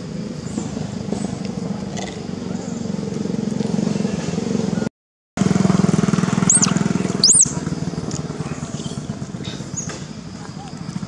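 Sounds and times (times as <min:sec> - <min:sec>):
small engine running: 0:05.4 - 0:10.0
short high squeaks: 0:06.5 - 0:07.5.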